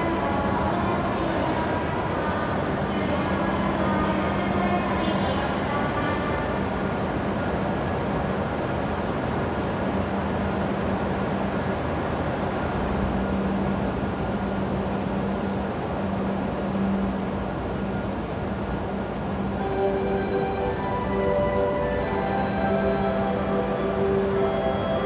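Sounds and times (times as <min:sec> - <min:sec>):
train equipment humming: 0:00.0 - 0:25.0
steady low tone: 0:09.9 - 0:25.0.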